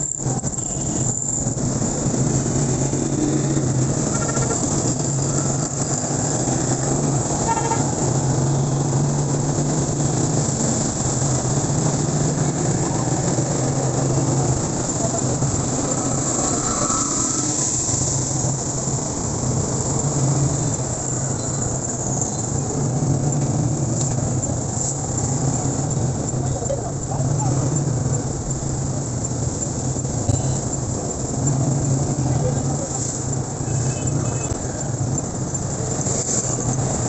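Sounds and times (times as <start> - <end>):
tyres on wet road: 0.0 - 37.0
vehicle engine droning: 0.0 - 37.0
car horn toots: 7.4 - 8.0.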